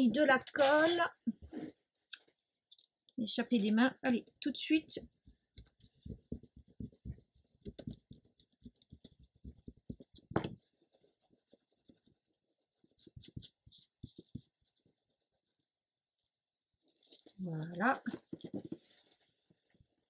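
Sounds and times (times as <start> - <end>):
rubbing paper on card: 5.0 - 15.7
light knocks and taps: 5.3 - 10.7.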